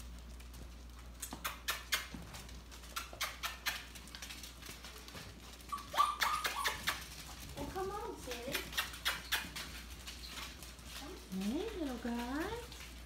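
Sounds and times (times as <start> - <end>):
puppy claws pattering on tile: 0.0 - 13.0
puppy whining: 2.8 - 10.7.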